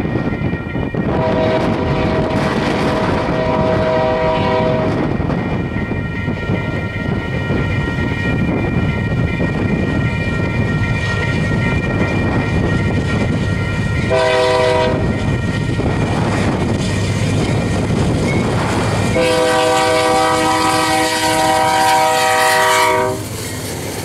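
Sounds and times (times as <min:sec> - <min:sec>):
crossing warning bell ringing: 0:00.0 - 0:23.7
freight train rumble: 0:00.0 - 0:24.0
locomotive air horn chord: 0:01.1 - 0:02.5, 0:03.1 - 0:05.0, 0:14.1 - 0:15.1, 0:19.2 - 0:23.2.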